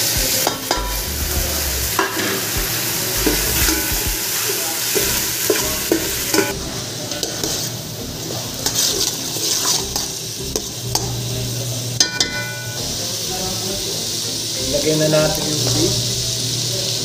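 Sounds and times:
vegetables sizzling in oil: 0.0s - 17.0s
spoon stirring and scraping pan: 2.0s - 11.2s.

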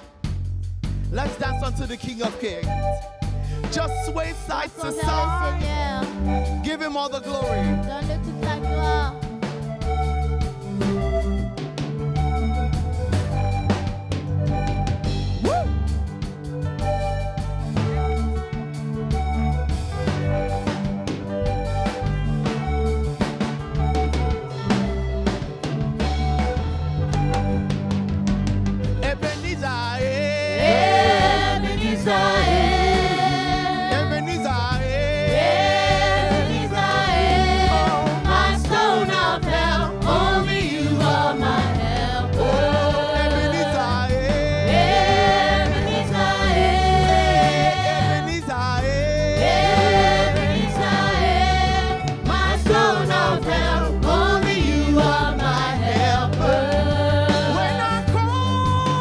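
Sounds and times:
instrumental backing with bass: 0.0s - 59.0s
women singing gospel song: 4.8s - 6.3s, 7.5s - 9.2s, 30.5s - 34.2s, 35.2s - 48.5s, 49.4s - 59.0s.

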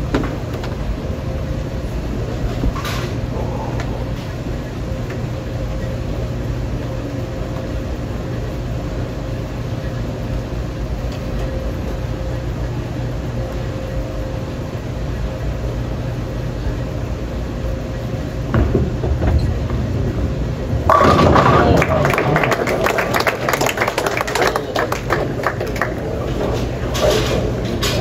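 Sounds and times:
lane machinery rumble and hum: 0.0s - 28.0s
bowling ball thud and rolling: 18.5s - 27.9s.

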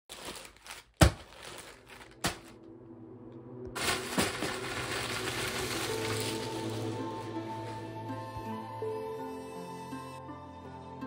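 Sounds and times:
bags thudding on carpet: 0.1s - 2.6s, 3.8s - 7.8s
plastic crinkling: 0.1s - 2.6s, 3.8s - 7.9s.

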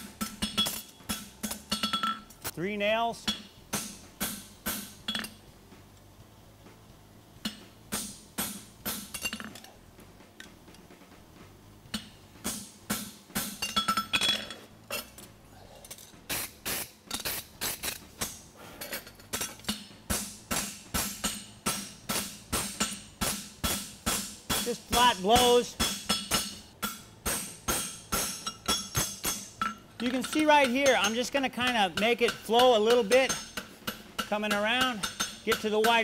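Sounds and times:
hammer striking steel on anvil: 0.0s - 2.3s, 3.2s - 5.4s, 7.4s - 9.6s, 11.9s - 15.2s, 19.3s - 36.0s.

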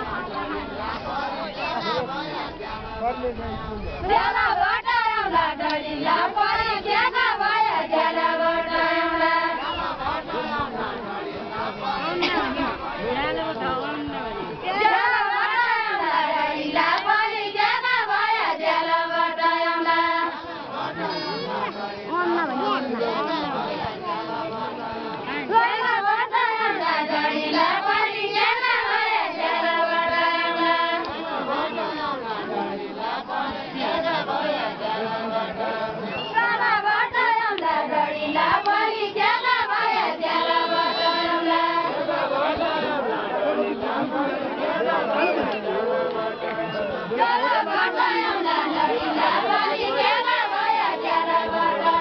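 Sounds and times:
women singing folk song: 3.9s - 52.0s.

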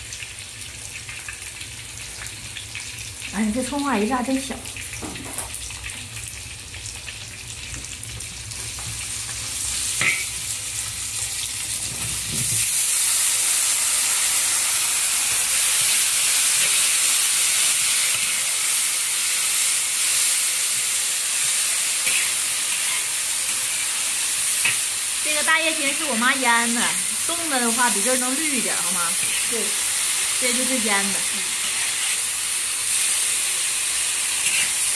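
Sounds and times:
food sizzling in a wok: 0.0s - 34.9s
metal spatula scraping a wok: 22.0s - 23.2s, 31.6s - 32.4s, 34.4s - 34.9s.

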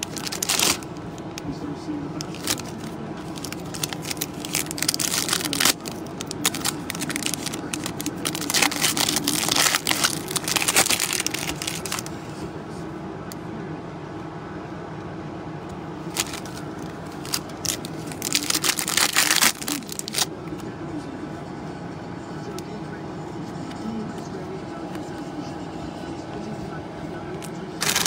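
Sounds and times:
cards and wrappers crinkling: 0.0s - 1.4s, 2.2s - 12.2s, 16.1s - 20.3s, 27.8s - 28.0s
steady low hum: 0.0s - 28.0s.

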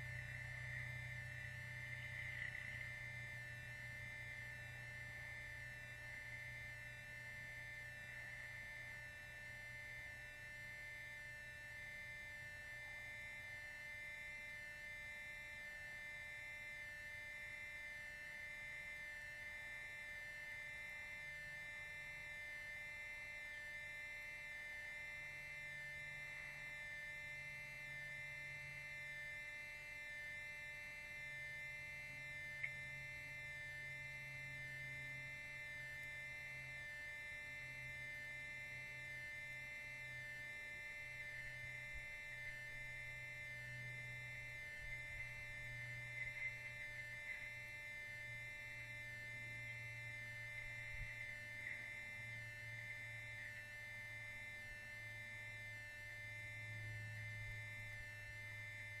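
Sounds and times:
electrical hum and buzz: 0.0s - 59.0s
faint ticks: 32.6s - 33.1s, 50.8s - 52.4s.

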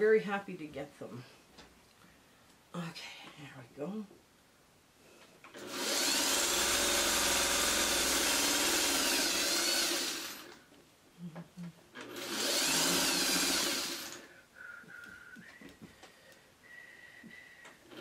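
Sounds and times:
sewing machine stitching: 5.5s - 10.6s, 12.0s - 14.2s.

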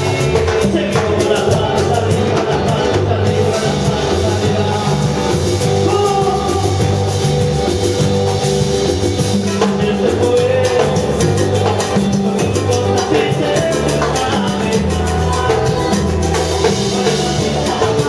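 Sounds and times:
people singing: 0.0s - 8.3s, 9.4s - 18.0s
electric bass line: 0.0s - 18.0s
keyboard: 0.0s - 18.0s
percussion beat: 0.0s - 18.0s.

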